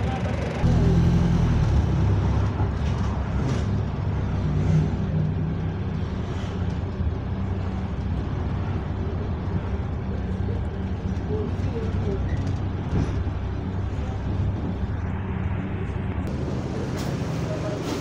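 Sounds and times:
bus diesel engine drone: 0.0s - 18.0s.

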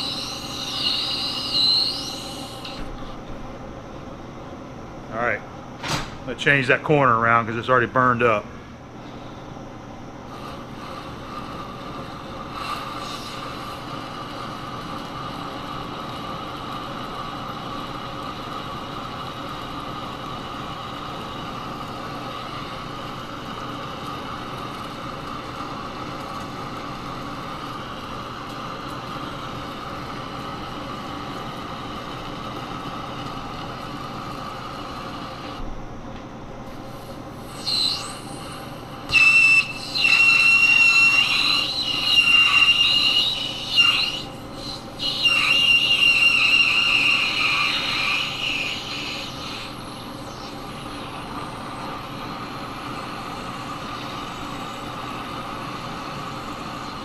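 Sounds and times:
high-pitched cutting squeal: 0.0s - 2.9s, 10.4s - 13.9s, 37.4s - 57.0s
lathe gear hum: 0.0s - 5.1s, 9.0s - 35.6s, 36.8s - 57.0s.

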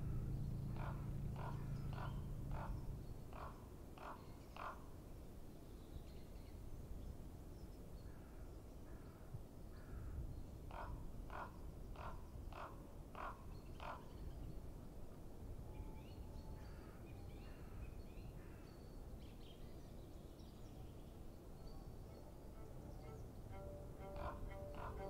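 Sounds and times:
low steady rumble: 0.0s - 5.4s, 21.0s - 25.0s
crow cawing: 0.7s - 4.9s, 10.7s - 14.0s, 24.0s - 25.0s.

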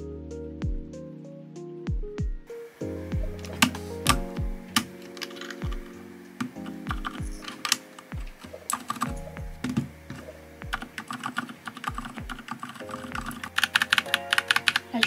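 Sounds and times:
background music: 0.0s - 15.0s
mechanical keyboard typing: 3.4s - 15.0s.

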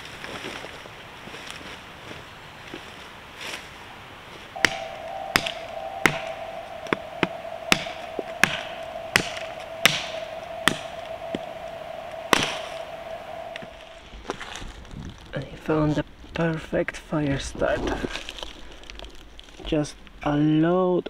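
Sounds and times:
steady tone: 4.6s - 14.3s.

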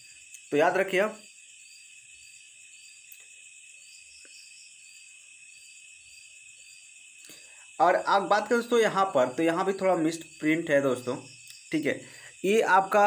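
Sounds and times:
crickets chirping: 0.0s - 13.0s
small clicks: 3.1s - 3.3s.

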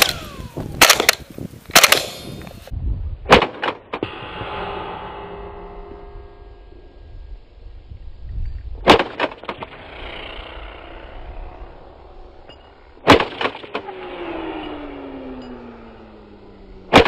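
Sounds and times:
suppressed rifle shots: 0.0s - 2.4s, 3.3s - 4.1s, 8.8s - 10.2s, 13.0s - 14.0s.

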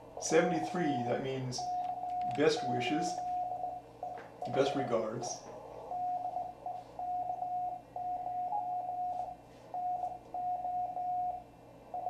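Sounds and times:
faint radio band hiss: 0.0s - 10.5s
morse code beeps: 1.5s - 4.9s, 5.8s - 12.0s.

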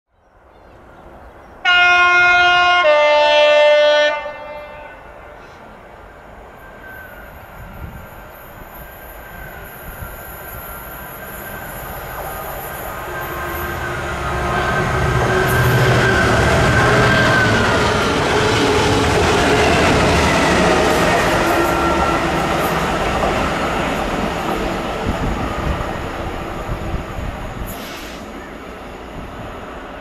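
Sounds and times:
rail noise: 0.3s - 30.0s
two-tone train horn: 1.6s - 5.7s
train engine: 2.4s - 30.0s.

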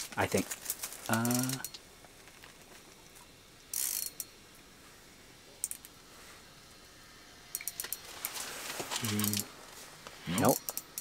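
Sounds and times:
rustle: 0.0s - 3.3s, 7.7s - 10.4s
fishing reel clicks: 1.2s - 1.8s, 3.7s - 4.3s, 5.6s - 5.9s, 7.5s - 8.0s, 9.1s - 9.5s, 10.4s - 11.0s.

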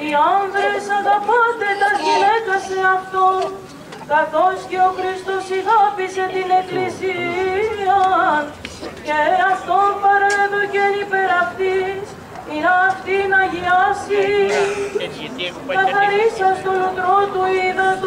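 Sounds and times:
person singing chant: 0.0s - 8.5s.

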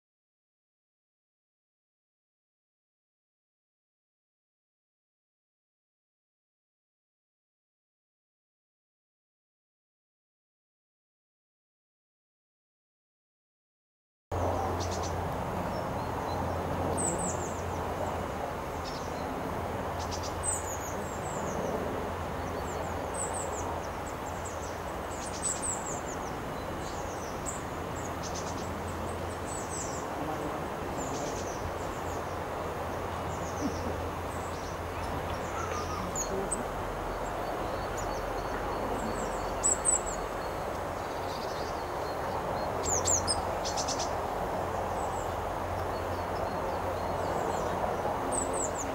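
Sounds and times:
songbird call notes: 14.4s - 19.3s, 19.9s - 48.9s.

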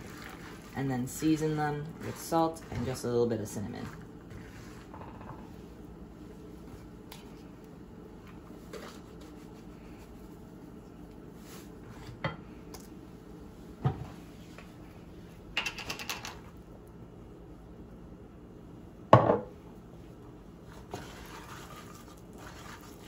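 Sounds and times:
spatula scraping in a skillet: 0.0s - 5.6s, 20.7s - 23.0s.

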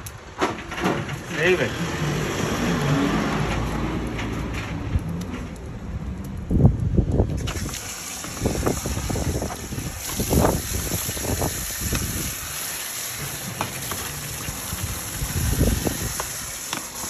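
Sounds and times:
water running from tap: 7.4s - 17.0s.

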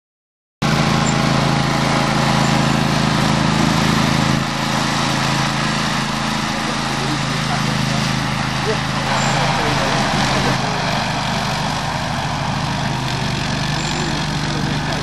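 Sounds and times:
mower deck cutting grass: 0.6s - 15.0s
ride-on mower engine: 0.6s - 15.0s.

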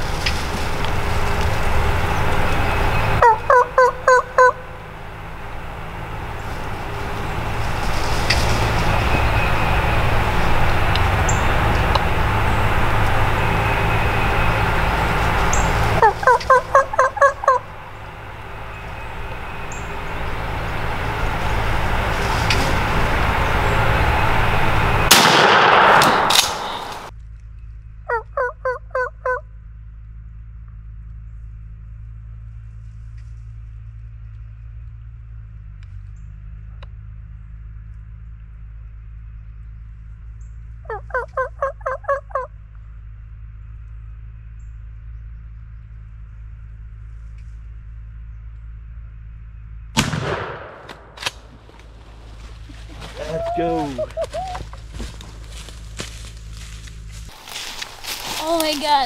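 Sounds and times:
turkey gobbling: 2.0s - 4.8s, 15.3s - 20.2s, 28.1s - 29.4s, 40.9s - 42.5s, 52.7s - 54.8s
loud rushing noise: 4.6s - 27.1s.

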